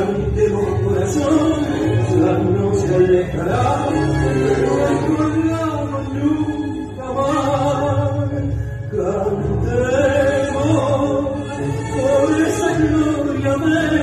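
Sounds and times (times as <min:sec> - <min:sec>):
low steady tango accompaniment: 0:00.0 - 0:14.0.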